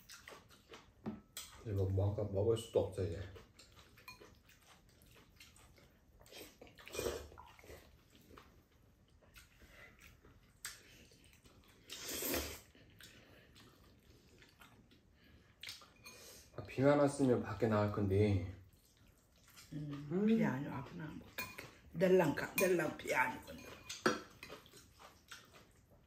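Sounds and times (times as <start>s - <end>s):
slurping and chewing noodles: 0.0s - 16.5s, 18.6s - 21.9s, 23.4s - 26.0s.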